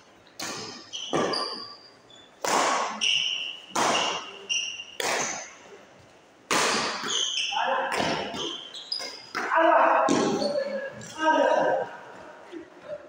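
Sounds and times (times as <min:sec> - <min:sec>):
shoes squeaking on court floor: 0:00.3 - 0:06.2, 0:06.8 - 0:13.0
racket striking shuttlecock: 0:00.4 - 0:01.6, 0:02.4 - 0:05.5, 0:06.5 - 0:07.3.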